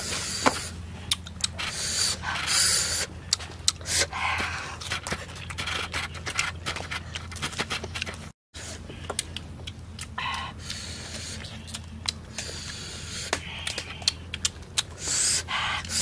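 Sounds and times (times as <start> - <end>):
chewing and lip smacks: 1.0 - 8.2, 9.0 - 16.0
breathy exhales: 12.3 - 14.2, 15.0 - 16.0.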